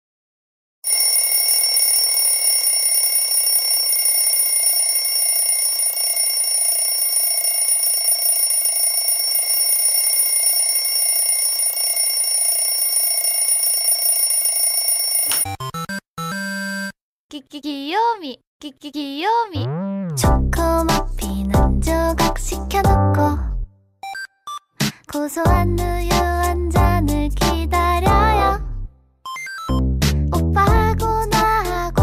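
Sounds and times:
alarm clock ringing: 0.9s - 15.4s.

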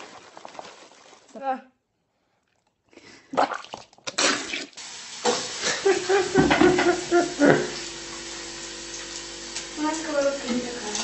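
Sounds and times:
water running from a tap: 4.2s - 11.0s.

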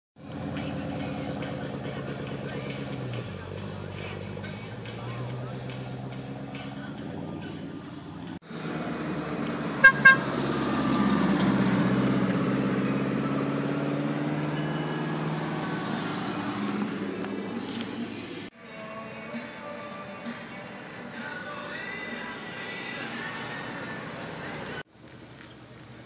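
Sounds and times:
car engine revving: 0.2s - 18.5s
car horn toots: 9.8s - 10.4s.

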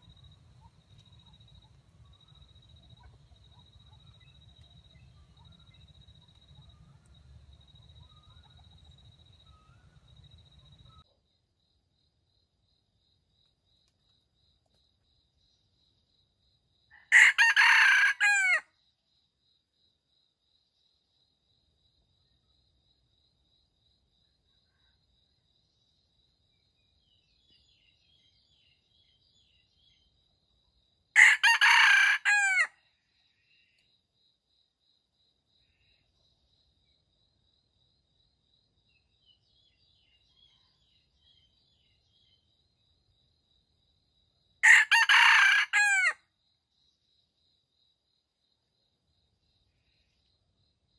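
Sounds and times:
rooster crowing: 17.0s - 18.7s, 31.2s - 32.8s, 44.6s - 46.2s.

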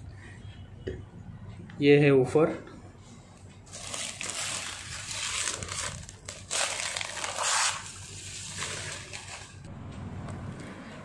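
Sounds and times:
plastic wrapping crinkling: 3.6s - 9.7s.

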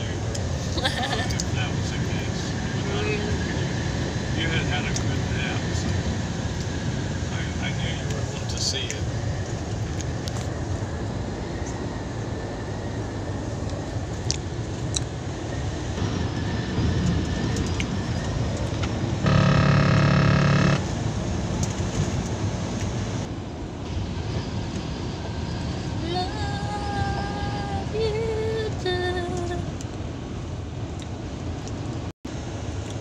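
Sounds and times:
truck engine and road noise: 0.0s - 33.0s
truck horn: 19.2s - 21.0s.

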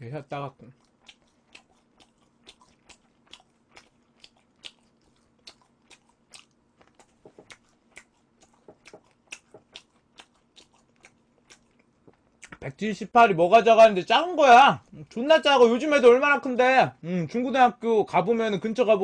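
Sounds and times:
chewing crunches: 0.6s - 12.6s
wet mouth clicks: 0.7s - 12.6s.

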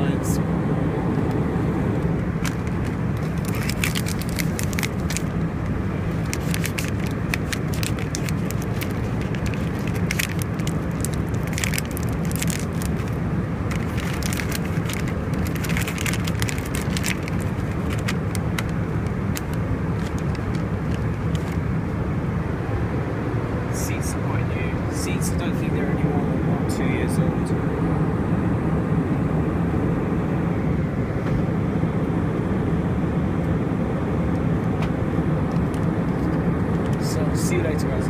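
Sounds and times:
aircraft cabin drone: 0.0s - 38.0s
snack packets crinkling: 2.4s - 5.4s, 6.1s - 21.6s.

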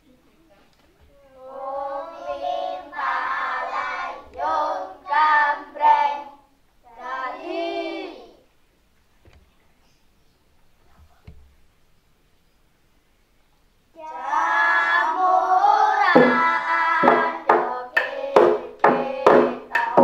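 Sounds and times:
children singing: 1.2s - 8.4s, 14.0s - 20.0s.

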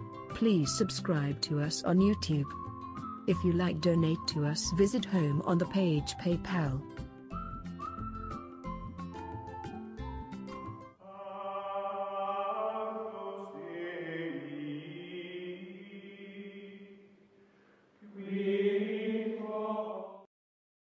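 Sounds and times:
voices singing held chords: 11.0s - 17.0s, 18.0s - 20.3s.

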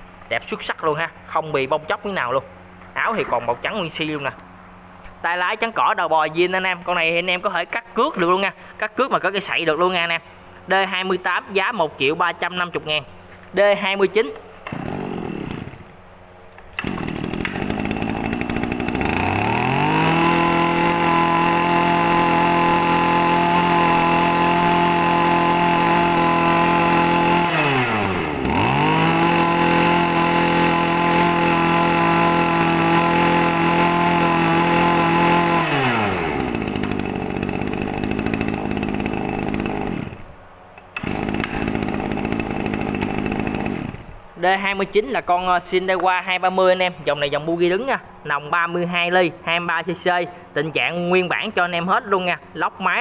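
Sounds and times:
brush cutter engine idling and revving: 14.6s - 16.0s, 16.8s - 40.3s, 40.9s - 44.2s.

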